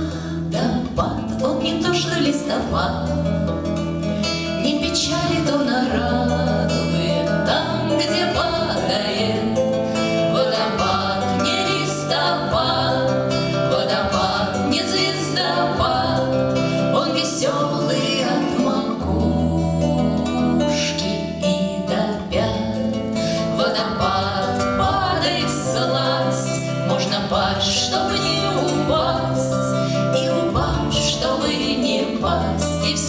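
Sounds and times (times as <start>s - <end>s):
women singing: 0.0s - 3.5s, 4.2s - 33.0s
acoustic guitar: 0.0s - 33.0s.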